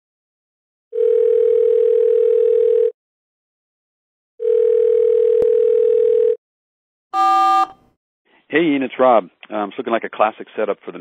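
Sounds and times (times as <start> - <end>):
telephone ringback tone: 1.0 - 2.9, 4.4 - 6.4, 7.2 - 7.8.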